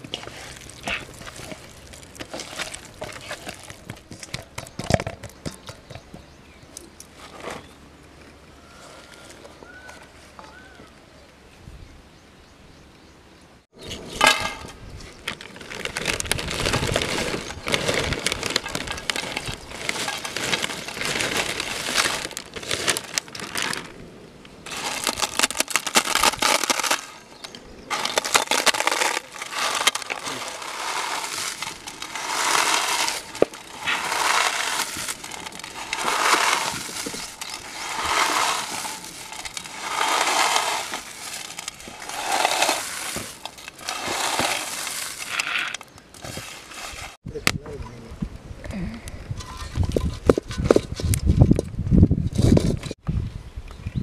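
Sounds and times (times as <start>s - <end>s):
potato chips crunching: 24.7s - 27.2s, 27.9s - 45.5s.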